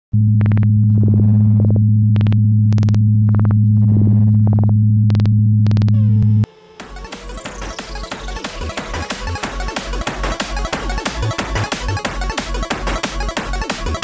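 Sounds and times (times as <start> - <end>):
low electronic drone: 0.1 - 14.0
falling synth sweep: 6.0 - 14.0.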